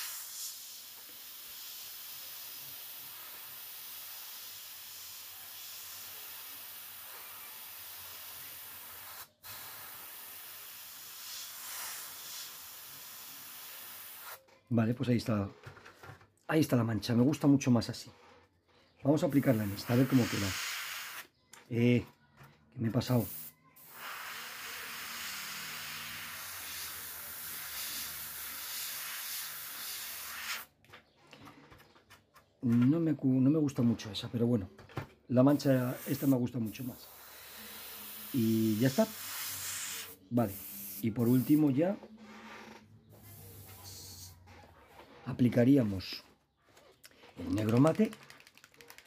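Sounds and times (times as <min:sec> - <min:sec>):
airbrush hissing: 0:00.0 - 0:14.4, 0:19.3 - 0:21.3, 0:23.1 - 0:30.7, 0:35.5 - 0:44.4.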